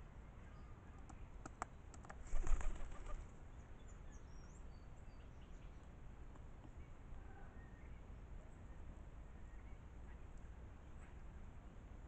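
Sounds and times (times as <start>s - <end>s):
pigeon wings flapping: 2.1s - 3.3s
faint high bird chirps: 6.7s - 11.4s.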